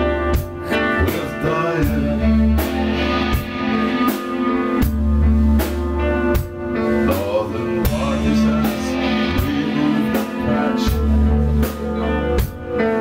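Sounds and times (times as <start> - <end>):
drum kit beat: 0.0 - 13.0
electric guitars: 0.0 - 13.0.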